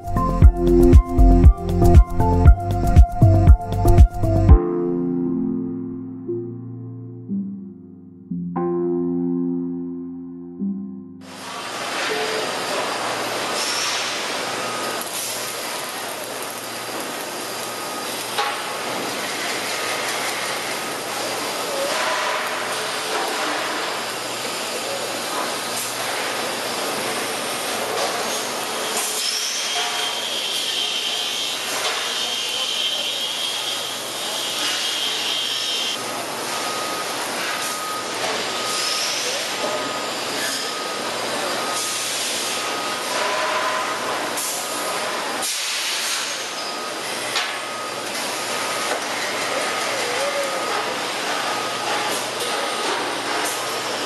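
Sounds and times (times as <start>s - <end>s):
welding arc hissing and crackling: 11.3s - 22.0s.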